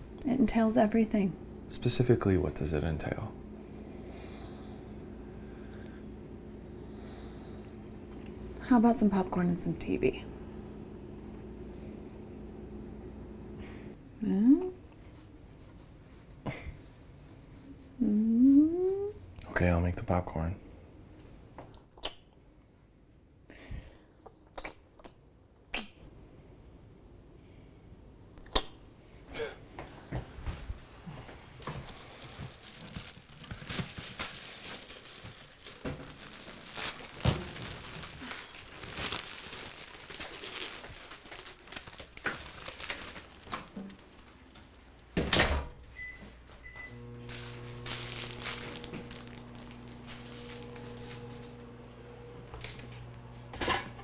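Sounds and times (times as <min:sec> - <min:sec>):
microwave oven humming: 0:00.0 - 0:15.0, 0:34.7 - 0:40.3, 0:41.5 - 0:54.0
packet crinkling: 0:31.7 - 0:44.4, 0:47.3 - 0:51.5.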